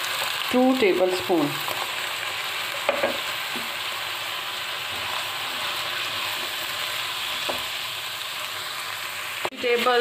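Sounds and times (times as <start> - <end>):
vegetables sizzling in oil: 0.0 - 10.0
spatula knocking wok: 2.8 - 3.8, 7.4 - 7.7.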